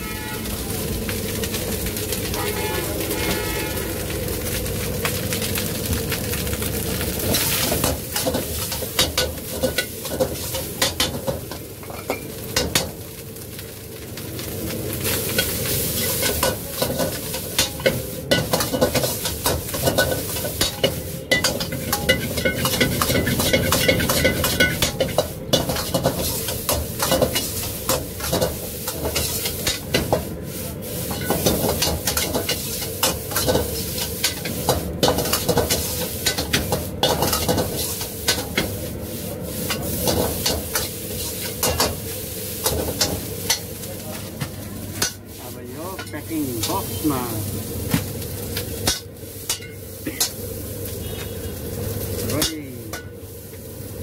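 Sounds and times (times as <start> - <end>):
rice sizzling in a wok: 0.0 - 54.0
metal utensils scraping and clanking: 7.2 - 12.9, 15.1 - 30.2, 30.8 - 47.2.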